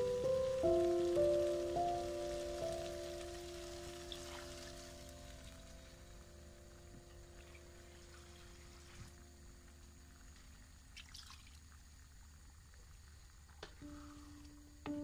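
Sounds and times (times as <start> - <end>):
water pouring into a pot: 0.0 - 6.2, 10.6 - 13.5
water in a cooking pot: 0.0 - 14.1.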